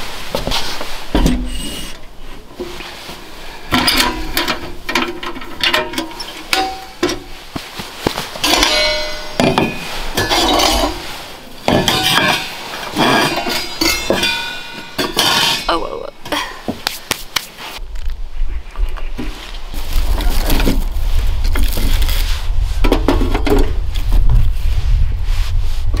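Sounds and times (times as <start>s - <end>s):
metal pipes clinking and ringing: 3.6s - 7.4s, 8.4s - 16.4s.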